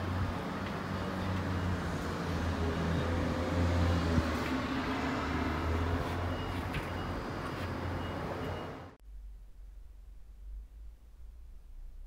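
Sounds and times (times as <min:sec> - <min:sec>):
low rumbling hum: 0:09.0 - 0:12.0.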